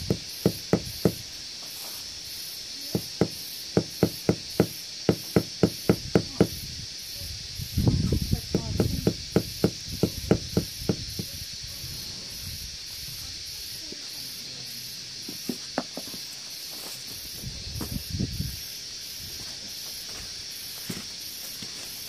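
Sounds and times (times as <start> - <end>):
steady hiss: 0.0 - 22.0
mallet knocking on paver: 2.9 - 6.6, 8.5 - 11.4.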